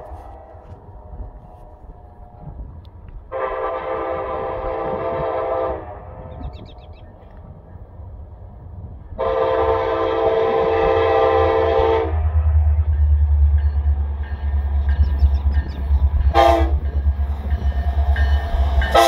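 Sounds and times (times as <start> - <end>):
locomotive chime air horn: 9.2 - 12.2, 14.5 - 17.1, 17.8 - 19.0.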